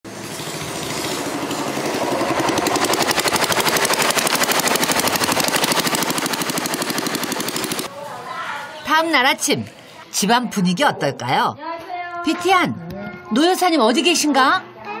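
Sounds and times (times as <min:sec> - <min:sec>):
motorboat engine putter: 0:00.2 - 0:07.9.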